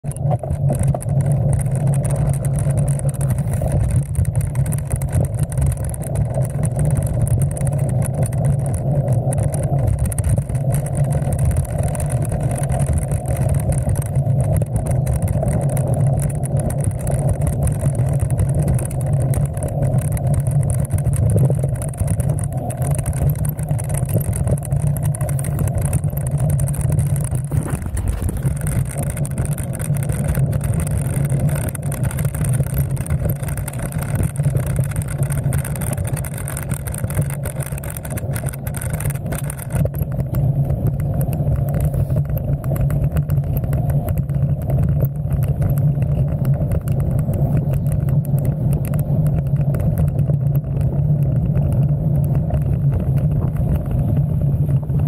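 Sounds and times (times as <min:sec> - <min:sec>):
bike tyres rolling over dirt: 0:00.0 - 0:55.0.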